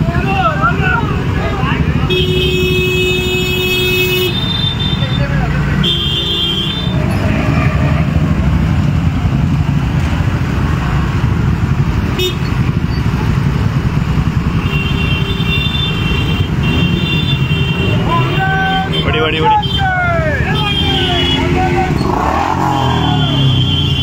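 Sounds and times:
motorcycle engines rumbling: 0.0s - 24.0s
vehicle horns: 1.9s - 8.0s, 12.1s - 12.8s, 14.4s - 24.0s.

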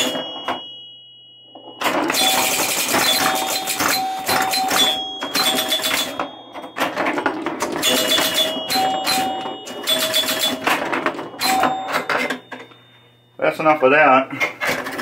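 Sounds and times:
pinball machine clattering: 0.0s - 12.9s, 14.3s - 15.0s
pinball scoring chimes: 0.0s - 15.0s.

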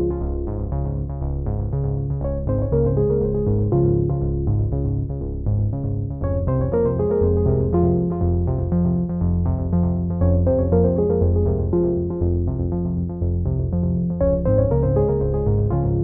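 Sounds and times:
low bass line: 0.0s - 16.0s
synthesizer keyboard run: 6.1s - 16.0s.

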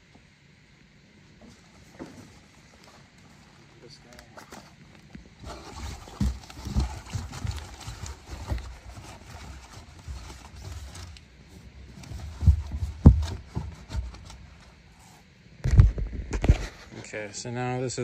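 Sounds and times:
sleeping pad thumping and rustling: 5.3s - 11.1s, 11.9s - 14.7s.

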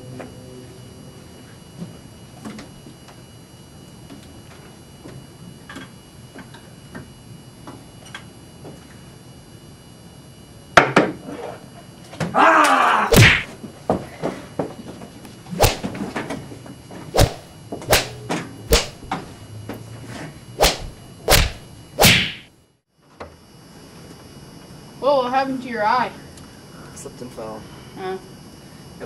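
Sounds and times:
hard whacking blows: 13.1s - 13.6s, 15.6s - 16.0s, 17.2s - 19.1s, 20.6s - 22.5s
loud rushing sound: 15.6s - 15.9s, 17.2s - 19.1s, 20.6s - 22.4s.

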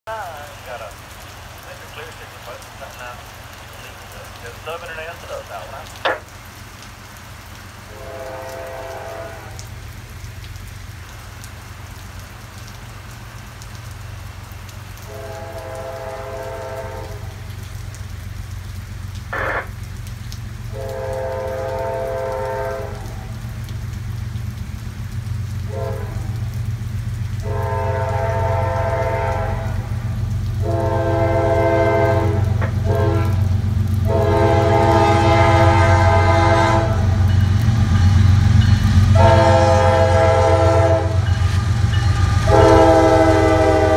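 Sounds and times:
train rumble: 0.1s - 43.9s
locomotive air horn blasts: 7.9s - 9.6s, 15.1s - 17.3s, 20.7s - 23.0s, 25.7s - 26.3s, 27.4s - 29.9s, 30.6s - 33.4s, 34.1s - 37.2s, 39.1s - 43.9s.

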